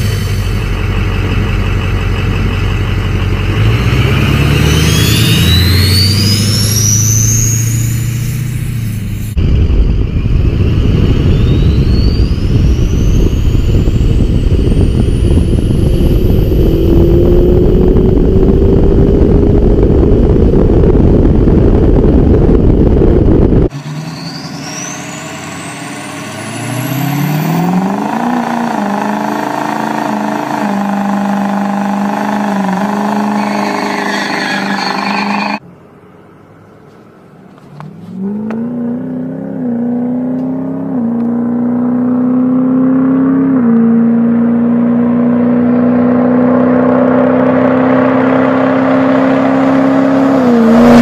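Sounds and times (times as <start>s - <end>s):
diesel truck engine: 0.0s - 51.0s
road and wind noise: 0.0s - 51.0s
turbo whistle: 4.5s - 9.3s, 10.0s - 17.0s, 23.9s - 35.6s.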